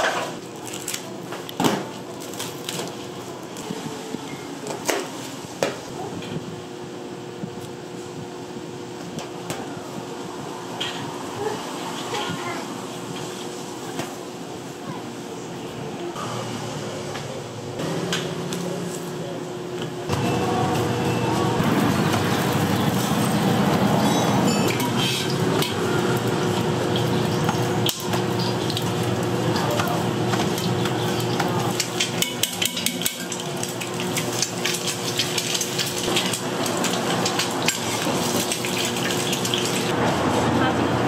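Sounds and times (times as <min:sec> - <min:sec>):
frying hiss: 0:20.5 - 0:40.0
metal utensils clinking on griddle: 0:23.0 - 0:25.8, 0:31.1 - 0:39.9.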